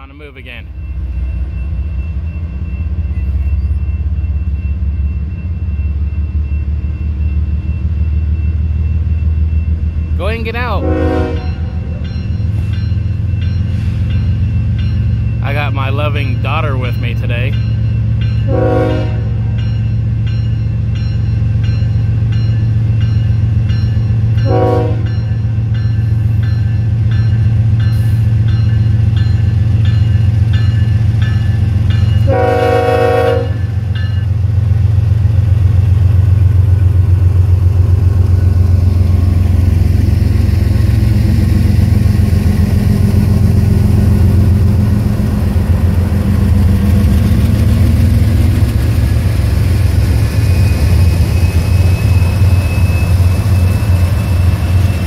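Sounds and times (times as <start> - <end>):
locomotive bell ringing: 0.0 - 34.9, 35.7 - 55.0
diesel locomotive engine drone: 0.0 - 55.0
train horn blasts: 10.8 - 11.9, 18.5 - 19.4, 24.4 - 25.2, 32.2 - 33.7.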